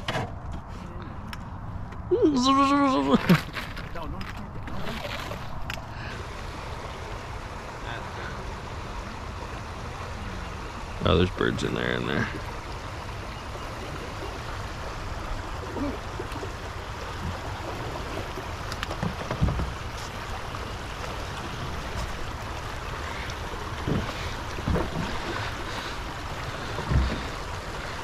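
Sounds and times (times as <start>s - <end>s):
river water flowing: 1.1s - 28.0s
dull low thumps: 23.7s - 25.6s, 26.7s - 27.5s.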